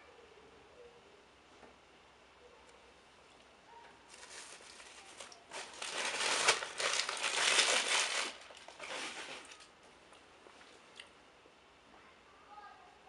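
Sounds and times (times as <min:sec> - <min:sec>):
crackly crinkling and crumpling: 0:02.7 - 0:11.2.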